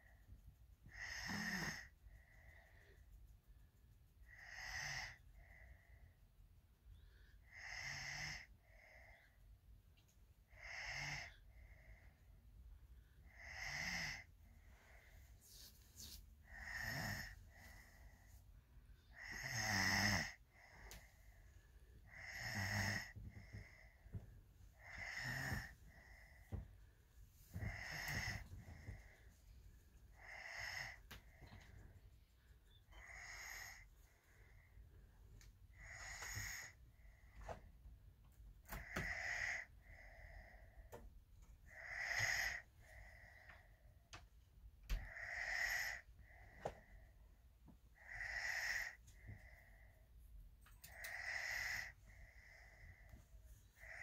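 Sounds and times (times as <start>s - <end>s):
child snoring: 0.9s - 2.5s, 4.3s - 5.3s, 7.4s - 9.4s, 10.5s - 11.5s, 13.3s - 15.0s, 16.4s - 18.2s, 19.1s - 21.1s, 22.1s - 24.0s, 24.8s - 26.5s, 27.5s - 29.2s, 30.1s - 31.4s, 32.9s - 33.9s, 35.7s - 36.8s, 38.7s - 40.8s, 41.7s - 43.5s, 44.9s - 47.0s, 48.0s - 49.8s, 50.9s - 53.1s, 53.8s - 54.0s.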